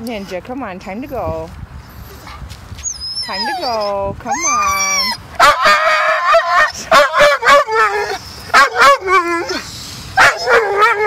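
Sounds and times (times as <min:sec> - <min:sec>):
dog yowling: 0:02.8 - 0:11.0
dog barking yowls: 0:04.3 - 0:09.6, 0:10.2 - 0:11.0.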